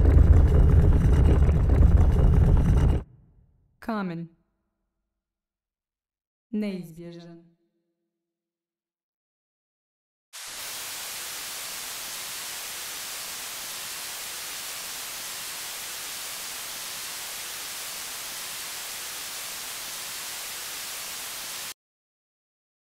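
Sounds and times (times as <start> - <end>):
white-noise static hiss: 10.4 - 21.7.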